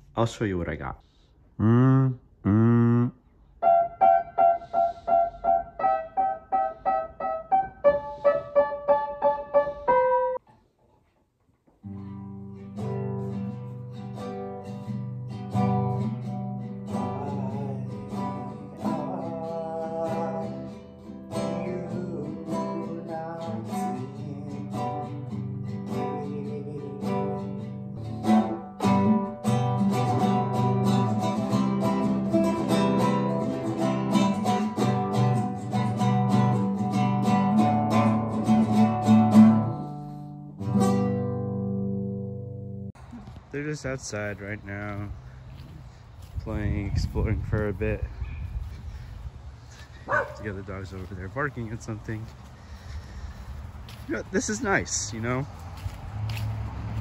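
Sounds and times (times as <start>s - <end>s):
piano repeated chords: 3.6s - 10.4s
acoustic guitar music: 3.6s - 10.5s, 11.6s - 43.0s.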